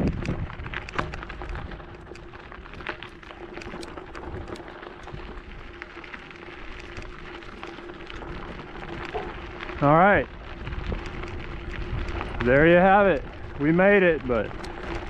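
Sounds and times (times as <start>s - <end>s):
bicycle tyres on gravel: 0.0s - 15.0s
stones ticking: 0.0s - 15.0s.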